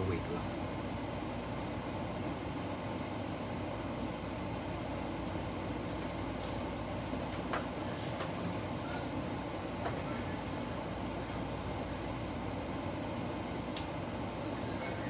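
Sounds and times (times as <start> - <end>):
low hum with hiss: 0.0 - 15.0.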